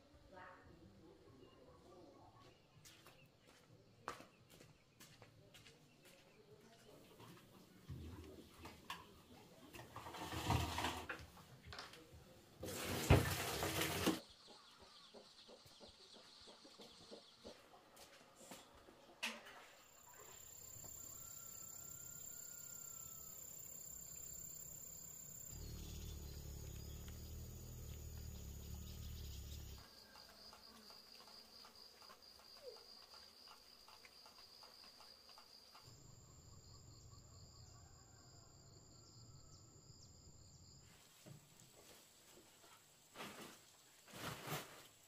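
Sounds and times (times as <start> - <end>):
insects trilling: 20.2 - 40.8.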